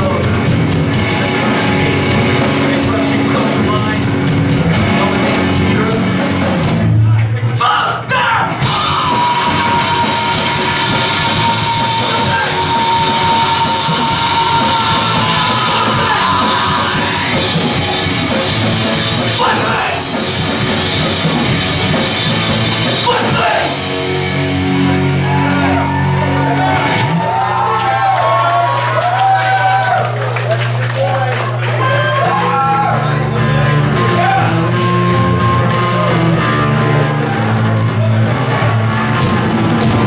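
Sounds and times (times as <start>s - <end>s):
drum kit: 0.0s - 7.2s, 8.5s - 32.6s, 33.4s - 40.0s
distorted electric guitar: 0.0s - 7.6s, 8.5s - 27.3s, 31.8s - 40.0s
bass guitar: 0.0s - 40.0s
shouted vocals: 7.6s - 18.1s, 19.2s - 20.2s, 22.9s - 23.8s.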